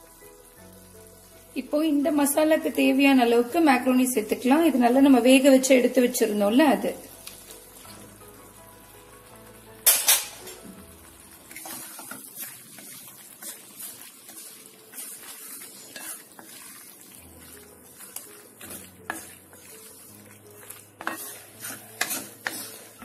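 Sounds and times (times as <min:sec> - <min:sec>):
faint sizzle: 0:00.0 - 0:23.0
wooden spatula scraping pan: 0:11.5 - 0:23.0.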